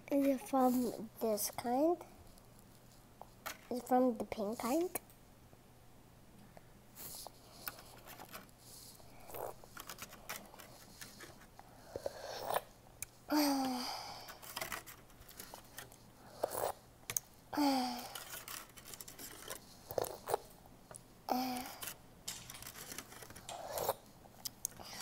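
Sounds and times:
plastic spoon scraping plastic tray: 0:09.2 - 0:12.7, 0:14.3 - 0:16.8, 0:18.0 - 0:20.5, 0:21.7 - 0:24.0.

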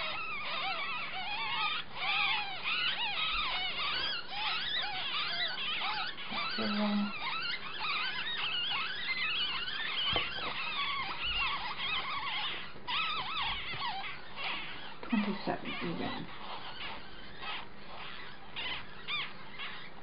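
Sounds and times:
ferret kits squeaking: 0:00.0 - 0:20.0.

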